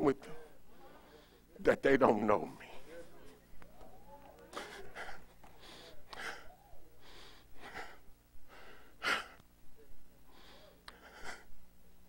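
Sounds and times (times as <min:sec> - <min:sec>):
man breathing hard: 0:04.6 - 0:09.4, 0:10.3 - 0:11.6.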